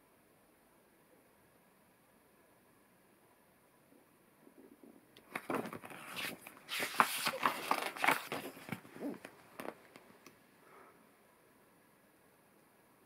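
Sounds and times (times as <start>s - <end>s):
book page turning: 5.2s - 10.0s.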